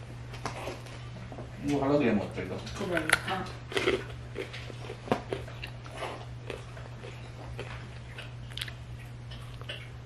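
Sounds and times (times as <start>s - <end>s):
crisp pastry crunching: 2.7s - 9.8s.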